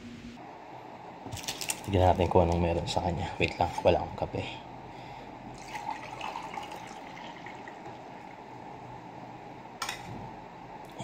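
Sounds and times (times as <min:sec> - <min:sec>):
coffee pouring into mug: 0:05.5 - 0:08.4.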